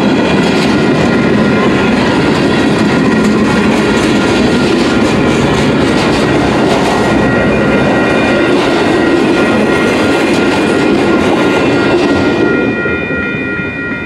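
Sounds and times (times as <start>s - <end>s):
crossing signal bell: 0.0s - 14.0s
freight train passing: 0.0s - 14.0s.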